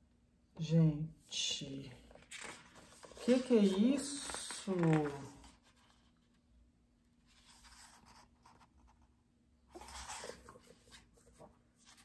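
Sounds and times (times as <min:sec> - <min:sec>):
book pages rustling: 0:02.1 - 0:06.4, 0:07.2 - 0:09.1, 0:09.7 - 0:12.0.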